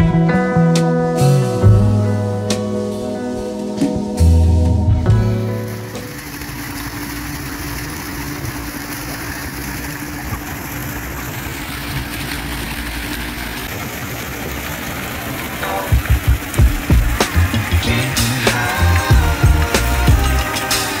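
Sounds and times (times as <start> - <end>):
constant low hum: 0.0 - 14.3, 14.9 - 20.6
fountain jets splashing: 5.1 - 21.0.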